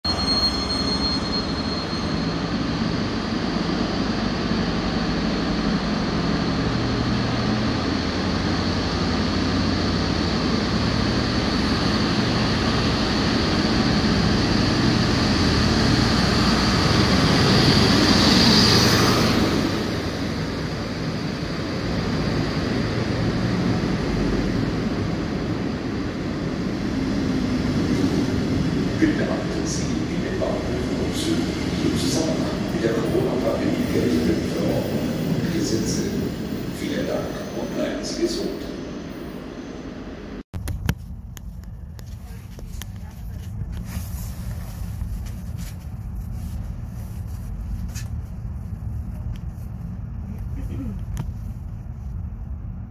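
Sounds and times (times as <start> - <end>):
diesel locomotive engine: 0.0 - 52.9
thin high squeal: 0.1 - 2.4
train coaches rumbling: 0.1 - 40.4.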